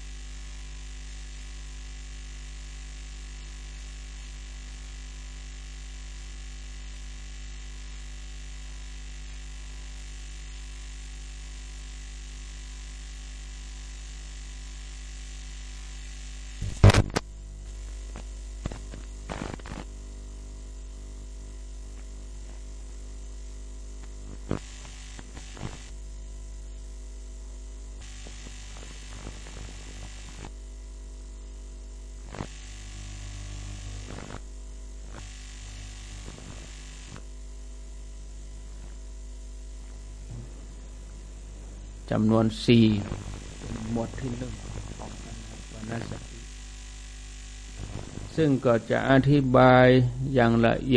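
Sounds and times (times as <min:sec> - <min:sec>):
electrical mains hum: 0:00.0 - 0:50.9
faint hiss: 0:40.3 - 0:46.6, 0:47.7 - 0:50.9.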